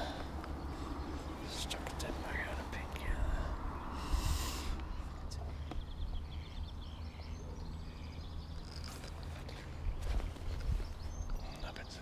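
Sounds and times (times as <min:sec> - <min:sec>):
faint bird chirps: 0:00.0 - 0:12.0
wind rumble on microphone: 0:09.8 - 0:11.9.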